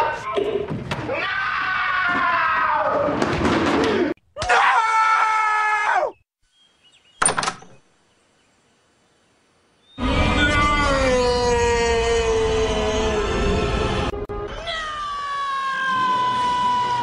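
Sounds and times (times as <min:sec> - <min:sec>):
person screaming: 0:10.2 - 0:13.8, 0:14.5 - 0:17.0.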